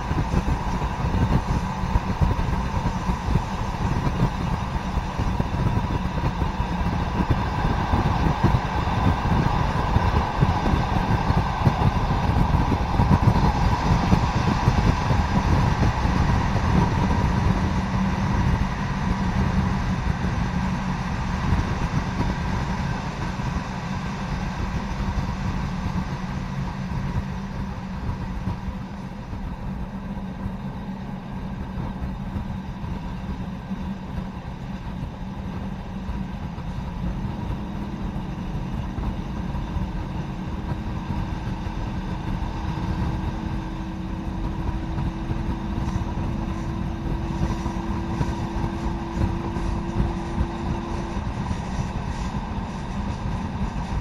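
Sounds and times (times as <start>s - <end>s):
diesel engine droning: 0.0s - 54.0s
wheel and rail noise: 0.0s - 54.0s.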